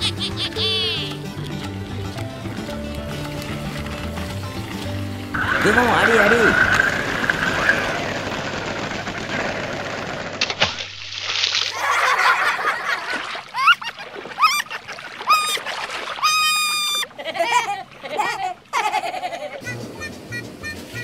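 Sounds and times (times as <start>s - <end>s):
water splashing and sloshing: 1.0s - 19.6s
short rising squeaks: 5.4s - 10.2s, 16.2s - 17.0s.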